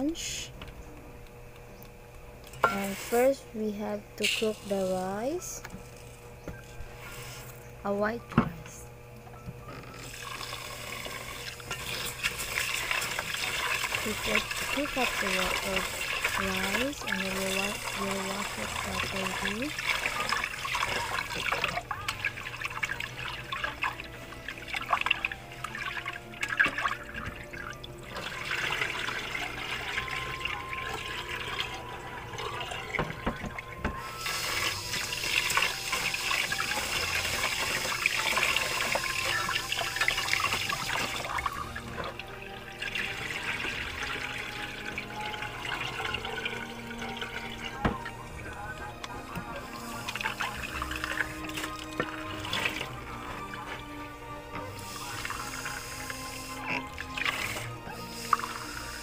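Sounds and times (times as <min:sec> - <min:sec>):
tap water running into pot: 0:02.4 - 0:03.4, 0:09.6 - 0:59.0.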